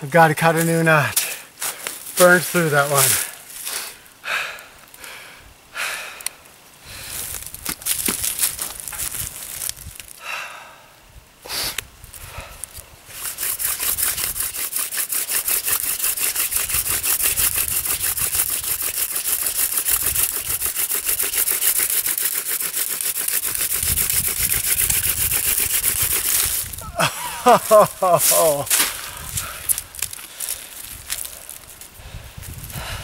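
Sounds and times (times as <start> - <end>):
hand drill rubbing on wood: 13.1 - 26.8.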